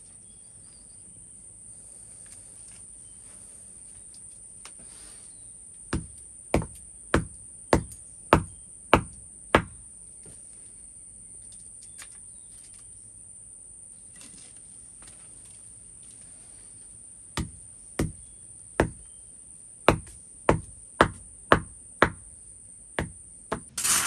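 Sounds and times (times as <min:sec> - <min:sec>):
high-pitched insect buzz: 0:23.5 - 0:24.0.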